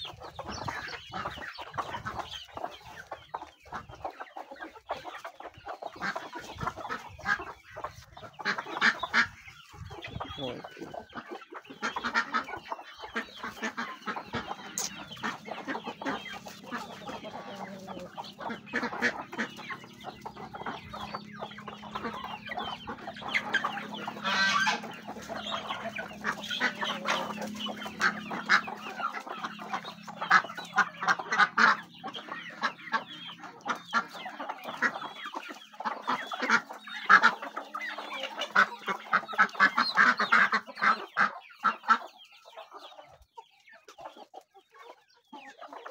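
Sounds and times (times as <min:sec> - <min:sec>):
chickens clucking: 0:00.0 - 0:45.9
loud chicken call: 0:10.0 - 0:42.0.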